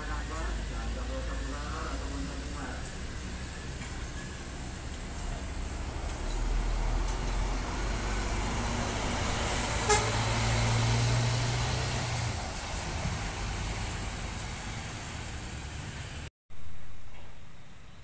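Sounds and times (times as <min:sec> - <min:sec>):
coach diesel engine droning: 0:00.0 - 0:16.3
short horn toot: 0:09.8 - 0:10.2.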